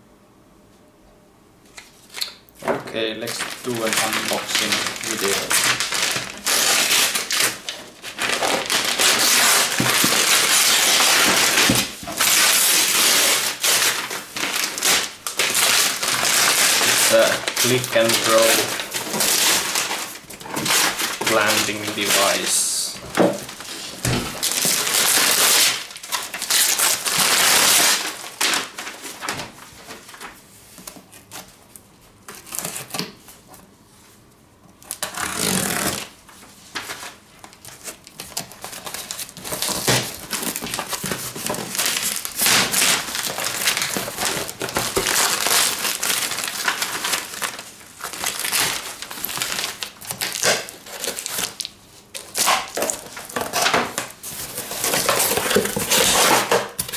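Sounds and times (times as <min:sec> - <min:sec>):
wrapping paper tearing: 0:03.2 - 0:31.6, 0:32.3 - 0:33.0, 0:34.8 - 0:56.9
paper crumpling by hand: 0:03.2 - 0:33.0, 0:34.8 - 0:56.9.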